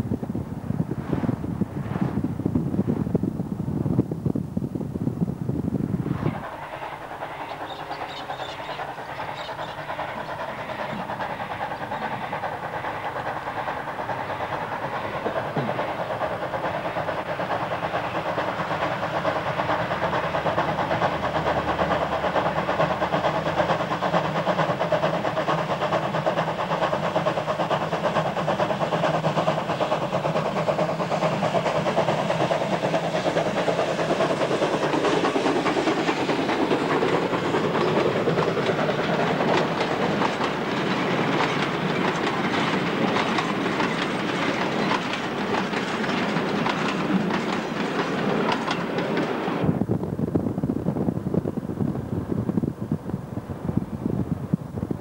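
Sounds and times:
wind buffeting on microphone: 0:00.0 - 0:06.6, 0:48.7 - 0:55.0
steam locomotive running: 0:00.0 - 0:55.0
steam hiss: 0:06.0 - 0:55.0.

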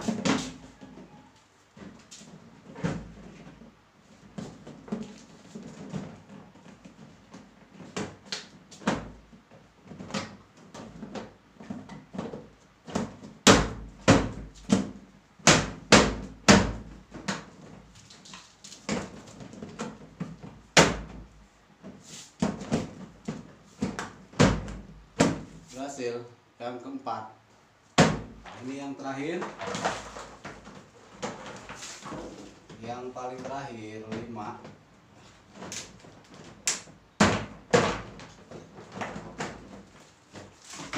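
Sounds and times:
plastic panels knocking and clacking: 0:35.5 - 0:40.9.

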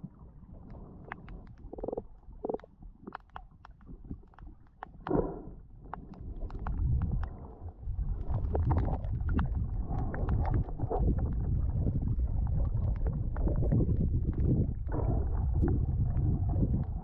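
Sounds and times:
underwater current rumble: 0:00.0 - 0:17.0
sharp underwater clicks: 0:00.7 - 0:07.4.

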